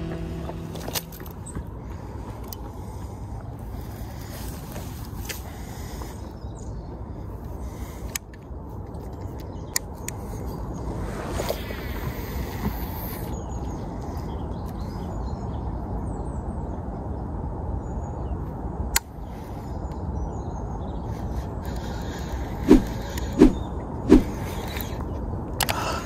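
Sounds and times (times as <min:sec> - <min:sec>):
low background rumble: 0:00.0 - 0:04.3.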